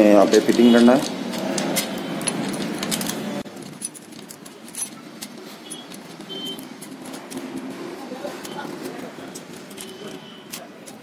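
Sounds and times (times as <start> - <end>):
metal chain clicking and jingling: 0.5 - 7.7, 9.3 - 10.6.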